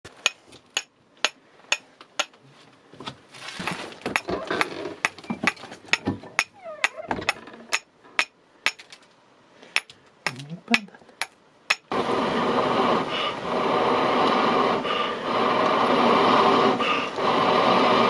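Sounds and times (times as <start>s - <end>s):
wood scraping and rustling: 2.4s - 6.4s.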